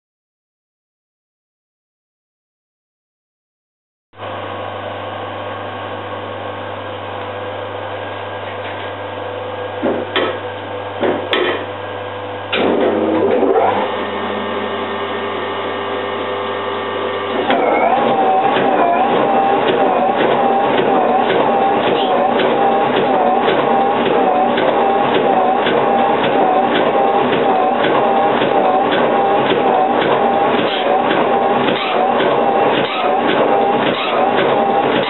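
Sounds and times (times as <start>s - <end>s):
metal shaper mechanical hum: 17.3s - 35.0s.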